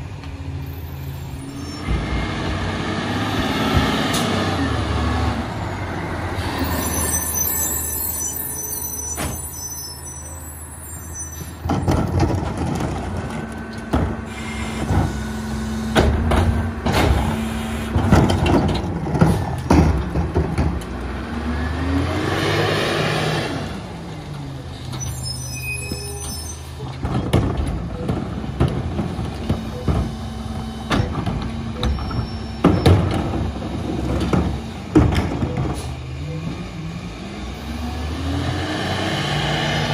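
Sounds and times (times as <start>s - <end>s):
garbage truck diesel engine: 0.0s - 39.9s
trash and bins clattering: 11.6s - 14.2s, 16.0s - 20.9s, 26.9s - 36.0s.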